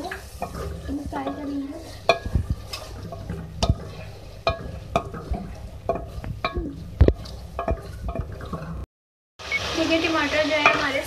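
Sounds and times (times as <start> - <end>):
food sizzling in oil: 0.0 - 8.8, 9.4 - 11.0
wooden spatula scraping a metal pot: 0.0 - 8.8.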